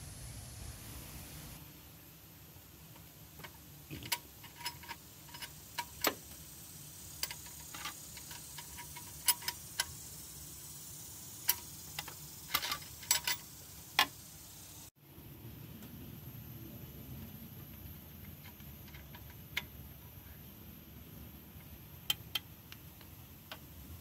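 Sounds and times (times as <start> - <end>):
wrench clicking against metal: 7.2 - 10.1.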